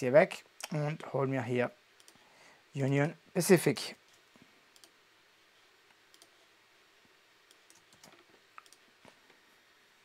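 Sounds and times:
computer mouse and keyboard clicks: 0:02.0 - 0:02.2, 0:04.1 - 0:05.0, 0:06.1 - 0:06.4, 0:07.5 - 0:09.2.

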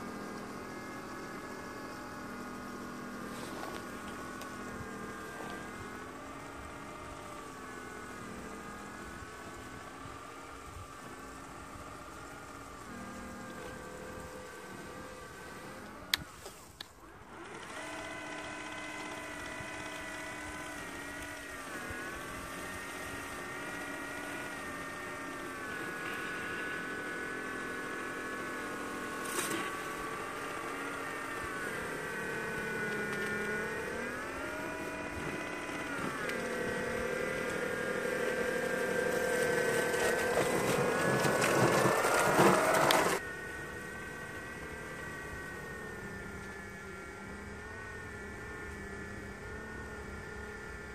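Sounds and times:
small motor whining: 0:00.0 - 0:50.9
click: 0:16.0 - 0:17.0.

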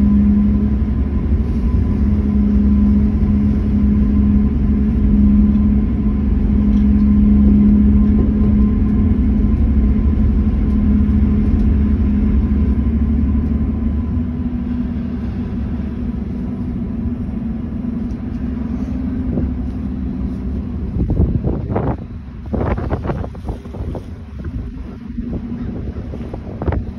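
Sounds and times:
ferry engines humming: 0:00.0 - 0:26.9
wind buffeting microphone: 0:00.0 - 0:26.9.

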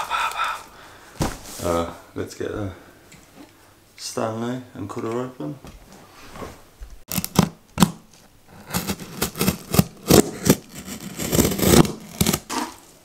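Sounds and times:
knife scraping tearing cardboard: 0:07.1 - 0:12.9.

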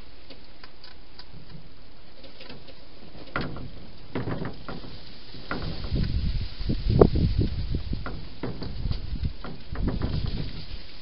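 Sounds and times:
hedgehog clicking and crunching: 0:00.2 - 0:03.4.

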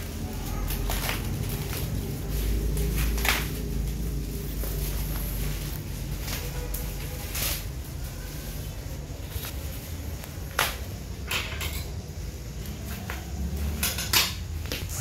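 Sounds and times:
scissors cutting plastic: 0:00.0 - 0:04.1
plastic bubble wrap crinkling: 0:00.0 - 0:11.1.

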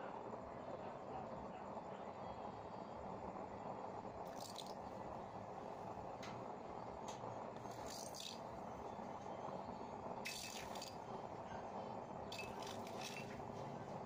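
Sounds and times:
stove flame rushing: 0:03.6 - 0:14.0.

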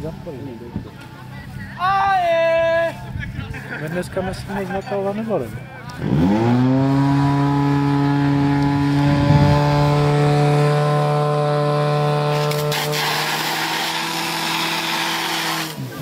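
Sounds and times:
fire pump engine revving: 0:05.9 - 0:16.0
hiss: 0:12.4 - 0:15.8.

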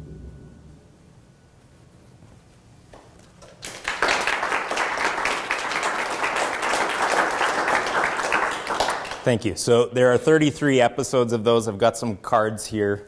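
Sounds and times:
audience applauding: 0:03.4 - 0:09.4.

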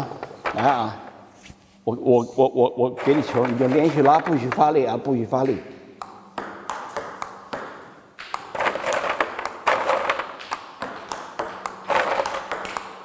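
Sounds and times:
ping-pong ball clicking off bats and table: 0:03.1 - 0:04.7, 0:05.3 - 0:13.0.

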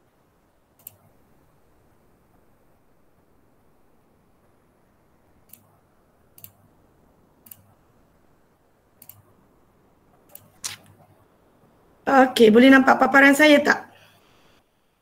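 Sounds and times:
computer mouse clicks: 0:00.8 - 0:01.1, 0:05.4 - 0:06.6, 0:07.4 - 0:07.8, 0:09.0 - 0:09.3, 0:10.3 - 0:11.1.

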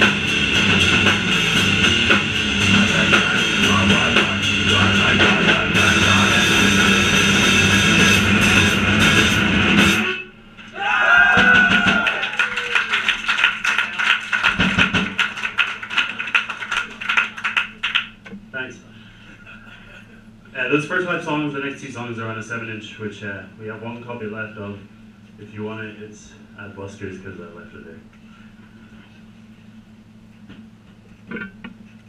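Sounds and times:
punk band playing live: 0:00.0 - 0:10.1, 0:11.4 - 0:12.2, 0:14.4 - 0:15.4
scattered claps: 0:11.4 - 0:18.3.

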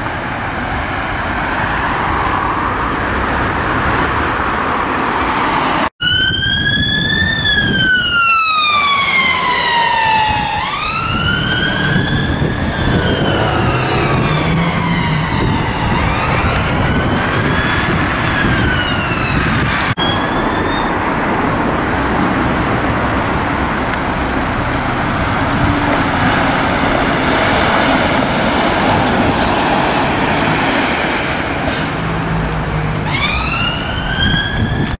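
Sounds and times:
traffic noise: 0:00.0 - 0:35.0
siren wailing: 0:06.0 - 0:21.2, 0:33.0 - 0:35.0.

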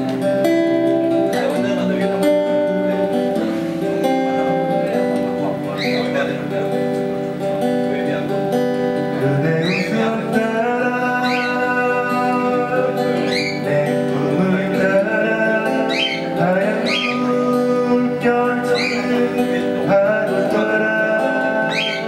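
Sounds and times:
strummed acoustic guitar: 0:00.0 - 0:22.0
man singing: 0:09.0 - 0:22.0.

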